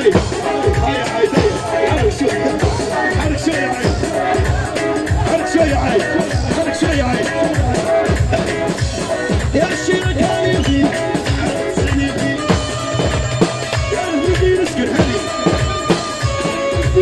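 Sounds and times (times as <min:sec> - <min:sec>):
heavy drum beat: 0:00.0 - 0:17.0.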